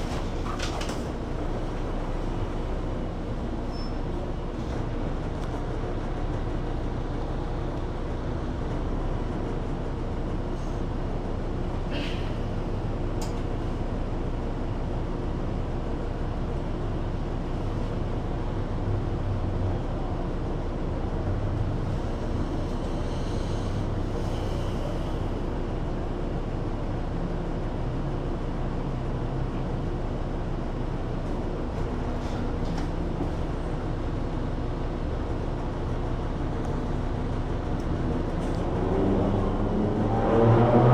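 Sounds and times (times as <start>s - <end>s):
bus engine idling: 0.0s - 38.9s
cars passing: 38.0s - 40.9s.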